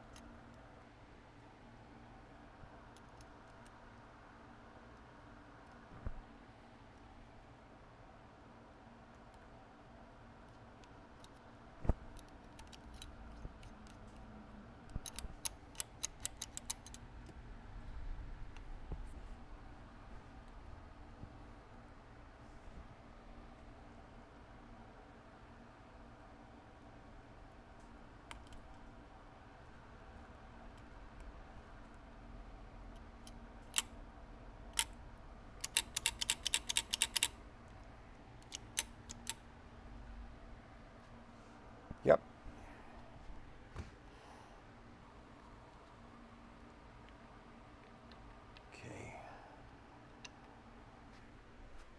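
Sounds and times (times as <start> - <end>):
screwdriver clicking on metal parts: 12.1 - 14.2, 14.9 - 17.0, 35.6 - 37.4, 38.4 - 39.4.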